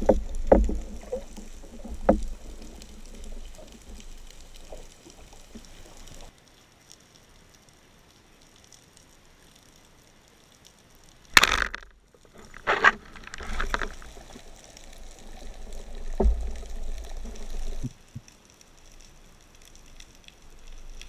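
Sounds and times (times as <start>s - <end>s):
speargun firing underwater: 11.4s - 11.9s.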